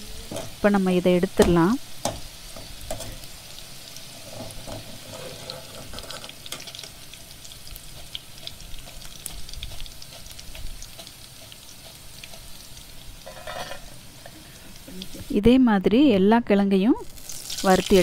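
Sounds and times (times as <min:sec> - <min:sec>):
potatoes deep-frying in oil: 0:00.0 - 0:18.0
skimmer scraping in pan: 0:04.0 - 0:06.8, 0:07.8 - 0:14.7.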